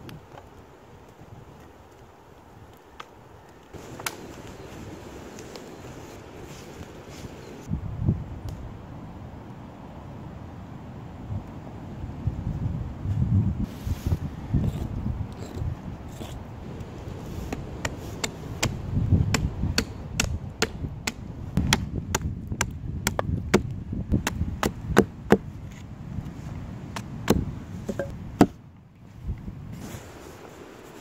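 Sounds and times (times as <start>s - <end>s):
hatchet chopping wood: 17.5s - 25.5s, 27.0s - 28.6s.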